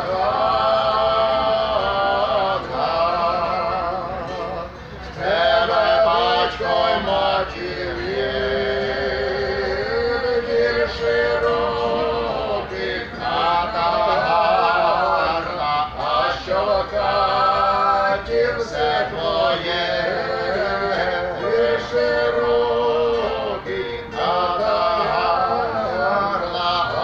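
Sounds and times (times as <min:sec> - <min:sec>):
folk string instruments: 0:00.0 - 0:27.0
man singing folk song: 0:00.0 - 0:27.0.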